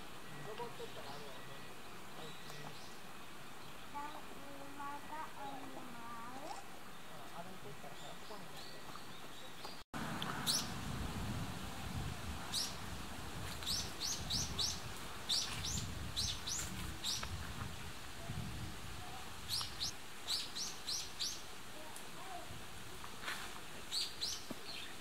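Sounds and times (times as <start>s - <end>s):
small bird chirping: 13.6s - 17.4s, 19.4s - 21.4s, 23.9s - 25.0s.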